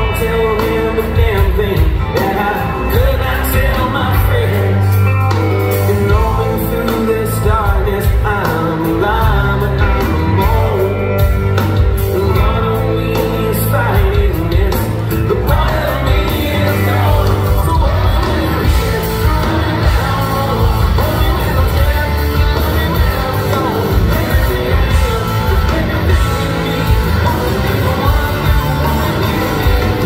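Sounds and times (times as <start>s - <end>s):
live rock band: 0.0s - 30.0s
male singer: 0.0s - 30.0s.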